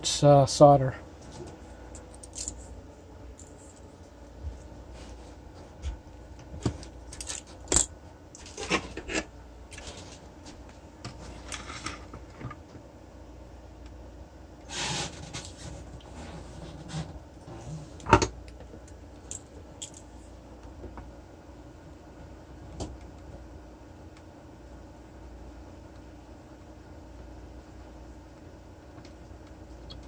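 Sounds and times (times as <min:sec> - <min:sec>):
metal tools clinking: 0:02.0 - 0:02.7, 0:19.3 - 0:20.1.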